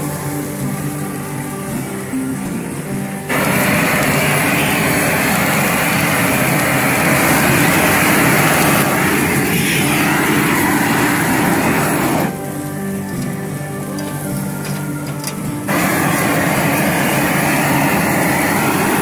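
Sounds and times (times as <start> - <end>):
flame thrower roaring: 3.3 - 13.0, 14.0 - 19.0.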